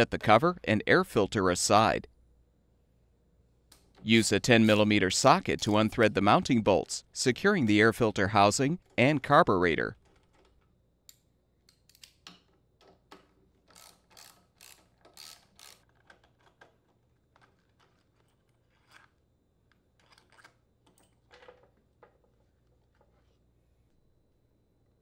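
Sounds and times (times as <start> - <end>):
ratchet wrench clicking: 13.7 - 15.8.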